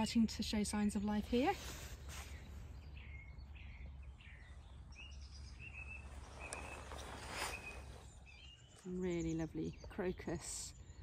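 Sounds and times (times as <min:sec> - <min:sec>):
birds chirping: 0:00.0 - 0:11.0
quiet outdoor background: 0:00.0 - 0:11.0
brief rustle: 0:06.4 - 0:08.1.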